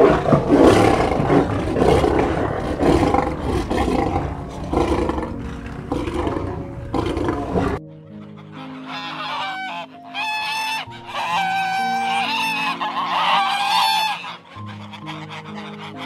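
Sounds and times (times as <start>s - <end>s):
soft background music: 0.0s - 16.0s
waterfowl honking: 7.5s - 16.0s.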